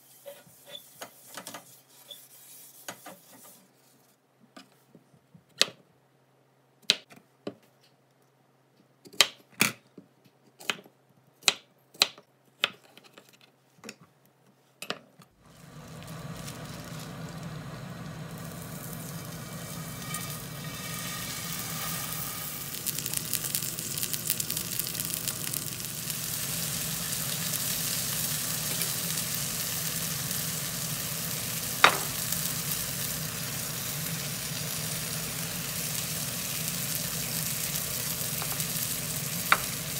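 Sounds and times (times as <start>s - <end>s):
steak sizzling in a pan: 15.5s - 39.9s.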